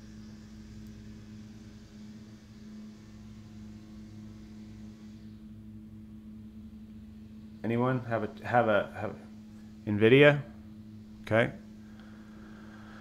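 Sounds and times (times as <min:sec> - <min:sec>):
faint hiss: 0:00.0 - 0:05.5
low hum: 0:00.0 - 0:13.0.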